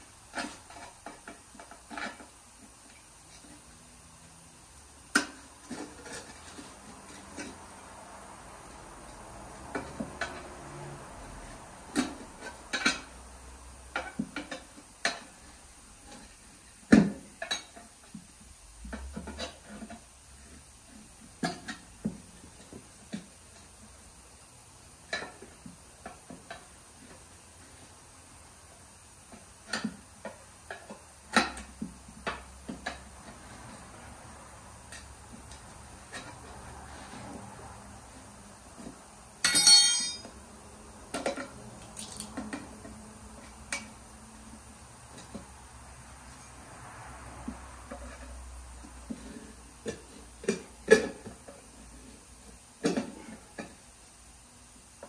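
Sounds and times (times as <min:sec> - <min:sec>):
metal tools knocking on wheel rim: 0:39.4 - 0:40.3.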